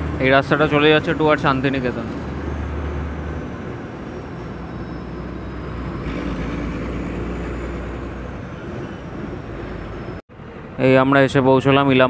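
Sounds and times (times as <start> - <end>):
bus engine and road rumble: 0.0 - 12.0.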